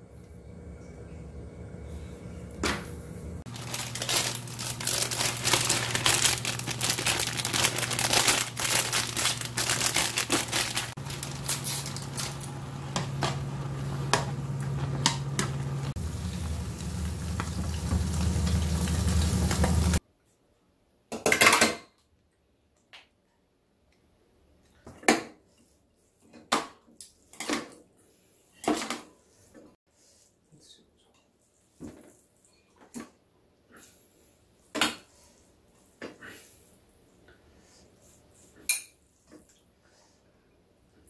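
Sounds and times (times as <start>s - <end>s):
low hum: 0.0s - 20.0s
plastic sachet torn open: 3.5s - 12.4s
noodles bubbling in a pan: 9.2s - 20.0s.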